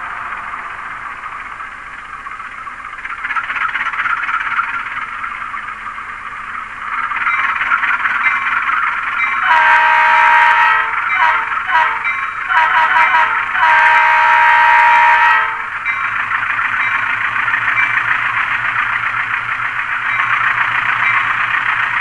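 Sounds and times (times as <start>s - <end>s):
diesel engine rattle through small speaker: 0.0s - 10.0s, 15.2s - 22.0s
chorded horn blast: 9.4s - 15.6s.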